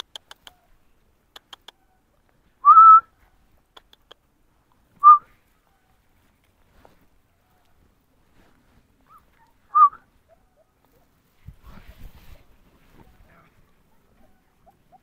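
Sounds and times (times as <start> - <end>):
person whistling: 2.6 - 3.1, 5.0 - 5.3, 9.7 - 10.0.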